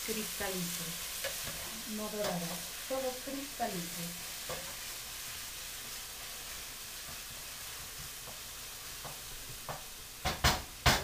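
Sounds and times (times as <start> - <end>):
onions sizzling in hot oil: 0.0 - 11.0
wooden spoon tapping pan: 8.0 - 8.4, 9.0 - 11.0.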